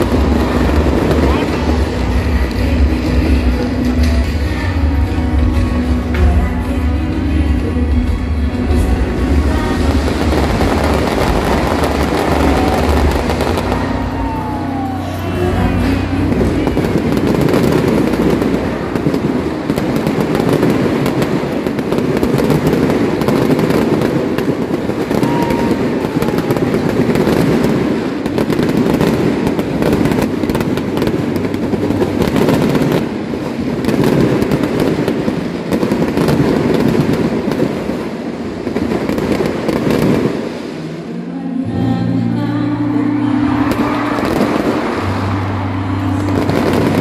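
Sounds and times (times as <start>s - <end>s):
fireworks crackling and banging: 0.0s - 42.1s, 43.0s - 47.0s.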